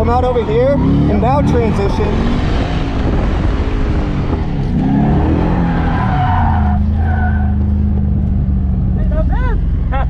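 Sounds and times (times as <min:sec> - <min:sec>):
tires squealing: 0:00.0 - 0:08.1
car engine revving: 0:00.0 - 0:10.0.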